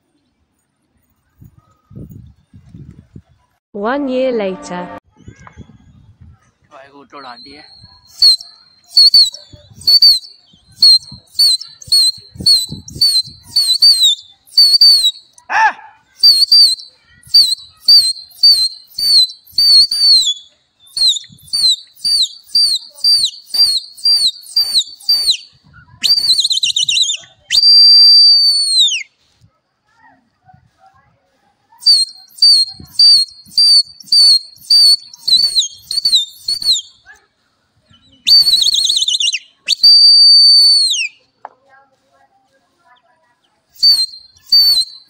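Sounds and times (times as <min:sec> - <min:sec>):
loud high whistling: 0:07.1 - 0:15.4, 0:16.2 - 0:29.1, 0:31.8 - 0:37.0, 0:38.2 - 0:41.2, 0:43.8 - 0:45.0
warbling whistle trill: 0:07.2 - 0:15.3, 0:16.2 - 0:29.1, 0:31.8 - 0:37.0, 0:38.3 - 0:41.2, 0:43.8 - 0:45.0
person shouting: 0:15.5 - 0:15.9.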